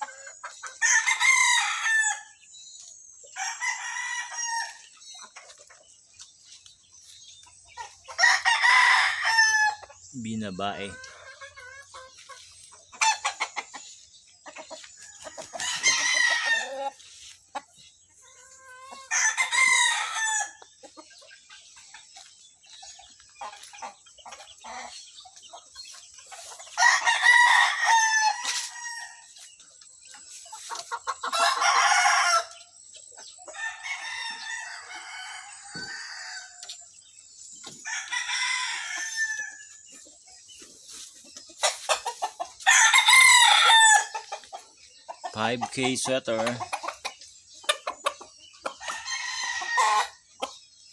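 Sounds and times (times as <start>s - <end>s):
roosters crowing: 0.0s - 2.4s, 3.3s - 5.2s, 7.8s - 12.3s, 14.6s - 17.4s, 18.2s - 20.7s, 26.4s - 29.4s, 30.6s - 32.7s, 33.5s - 36.8s, 37.6s - 39.8s, 41.6s - 44.5s, 48.7s - 50.3s.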